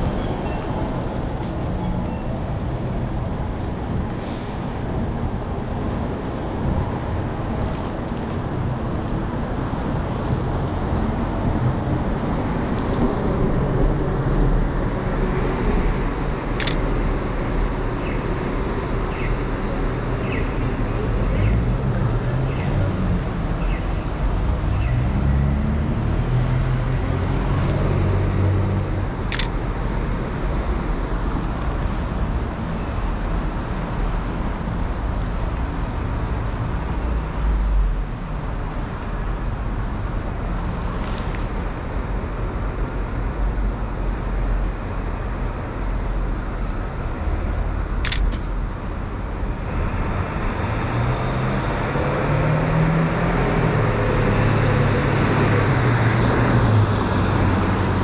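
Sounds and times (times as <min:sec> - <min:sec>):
passing cars: 0:00.0 - 0:58.0
sharp clicks: 0:16.6 - 0:16.8, 0:29.3 - 0:29.6, 0:48.1 - 0:48.4.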